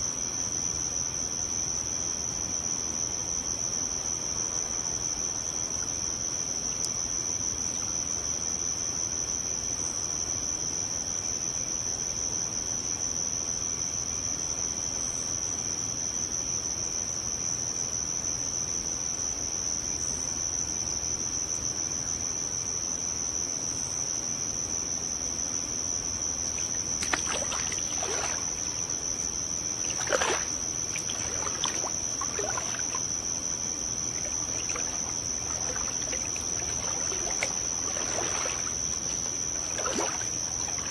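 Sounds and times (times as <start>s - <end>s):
pool water splashing: 26.4s - 40.9s.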